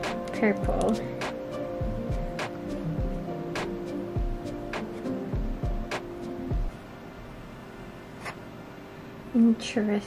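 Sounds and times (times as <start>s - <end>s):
background music with sustained chords: 0.0s - 10.0s
low kick drum thumps: 1.8s - 6.8s.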